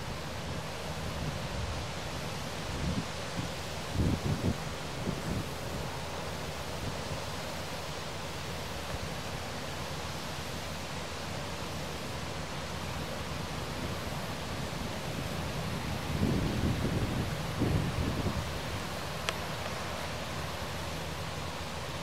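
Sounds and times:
wind rushing over microphone: 2.7 - 5.8, 14.6 - 19.0.

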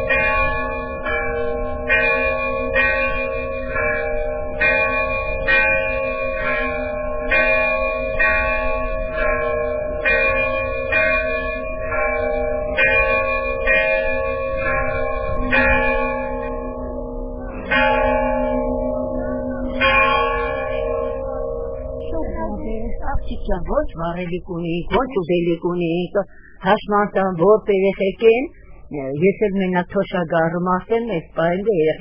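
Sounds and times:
bells ringing in a slow peal: 0.0 - 22.4.

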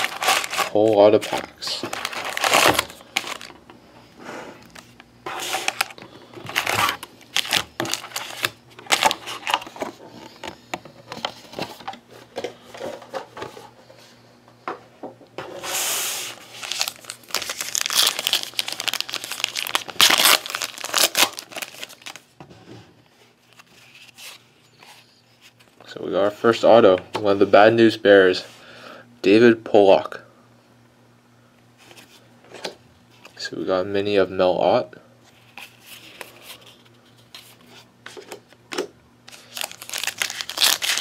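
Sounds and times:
wrapper ripping: 0.0 - 3.5, 16.3 - 22.2, 39.3 - 41.0
wrappers crinkling and rustling: 0.0 - 3.6, 4.7 - 10.0, 16.2 - 22.3, 39.3 - 41.0.

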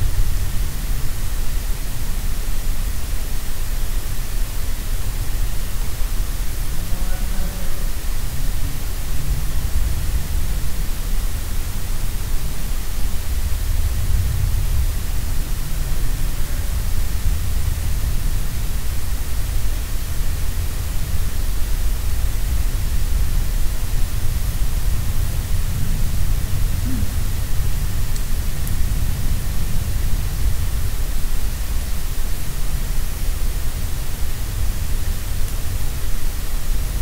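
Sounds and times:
constant hiss: 0.0 - 37.0
low rumble: 24.8 - 30.8.

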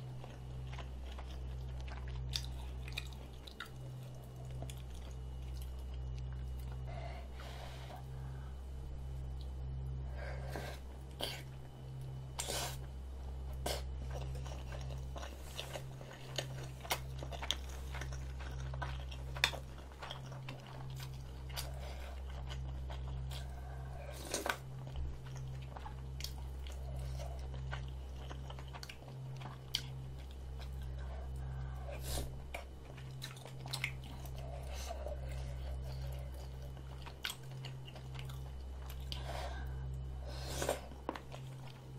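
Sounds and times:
steady low hum: 0.0 - 41.9
wet chewing mouth sounds: 13.5 - 41.9.

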